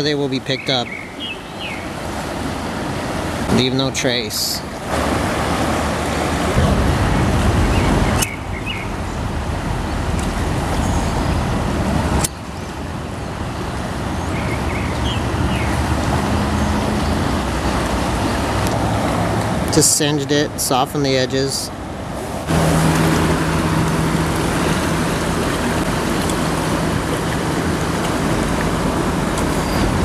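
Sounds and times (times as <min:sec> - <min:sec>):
river roaring in flood: 0:00.0 - 0:30.0.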